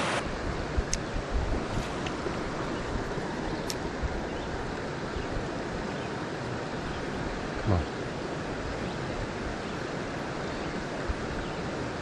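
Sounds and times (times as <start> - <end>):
creek water flowing over rocks: 0.0 - 12.0.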